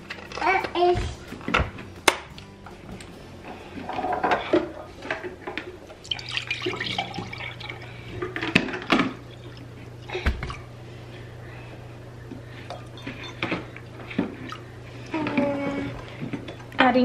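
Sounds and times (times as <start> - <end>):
juice pouring into cup: 6.0 - 8.0.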